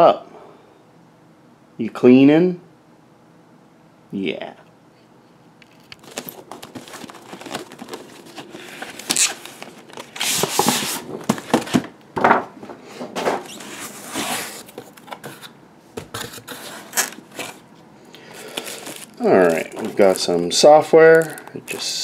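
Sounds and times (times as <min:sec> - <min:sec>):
cardboard scraping and sliding: 0:06.6 - 0:11.8, 0:13.2 - 0:17.6.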